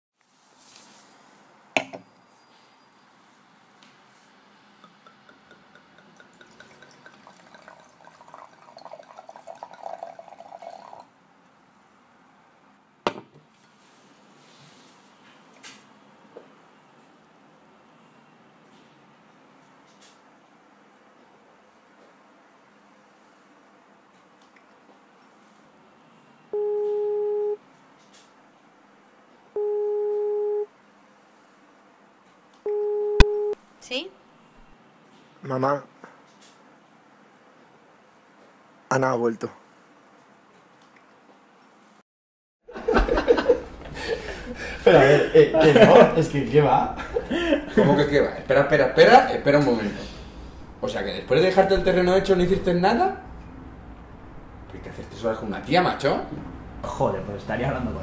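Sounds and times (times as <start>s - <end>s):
liquid dripping: 4.8s - 11.1s
liquid pouring: 4.8s - 11.2s
telephone ringback tone: 26.6s - 27.6s, 29.6s - 30.7s, 32.7s - 33.6s.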